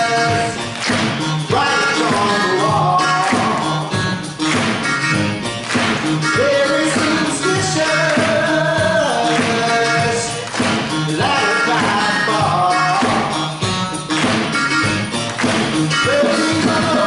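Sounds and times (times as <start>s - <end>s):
man singing: 0.0s - 0.7s, 1.4s - 4.0s, 6.2s - 13.6s, 15.9s - 17.0s
live band playing: 0.0s - 17.0s.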